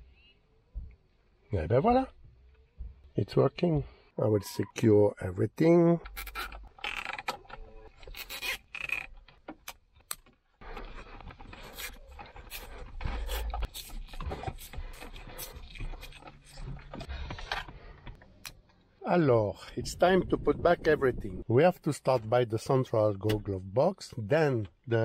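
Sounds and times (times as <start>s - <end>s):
hands rubbing and scraping wiring: 6.0s - 18.4s.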